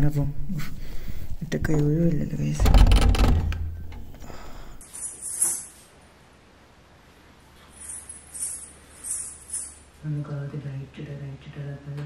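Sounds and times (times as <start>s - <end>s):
ankle bells jingling: 7.6s - 10.0s.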